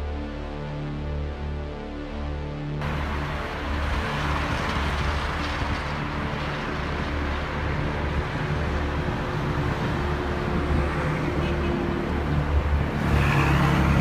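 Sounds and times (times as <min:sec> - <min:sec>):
car engine hum: 0:02.8 - 0:11.0
surrounding traffic: 0:02.8 - 0:14.0.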